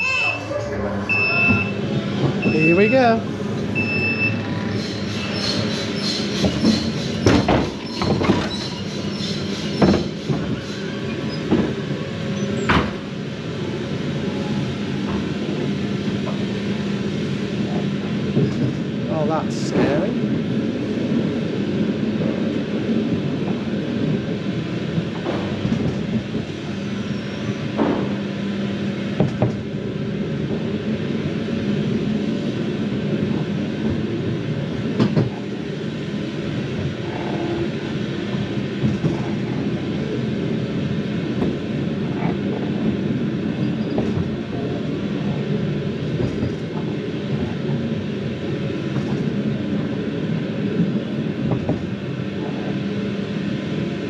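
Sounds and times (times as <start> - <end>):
ride car rumbling on track: 0.0 - 54.0
sharp knocks and clatters: 6.3 - 8.8, 9.6 - 10.8.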